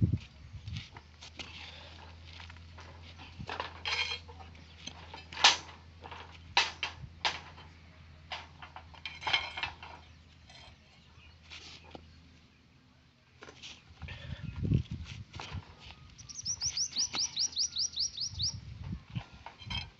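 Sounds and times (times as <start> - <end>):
steel bars clanking: 2.8 - 10.8.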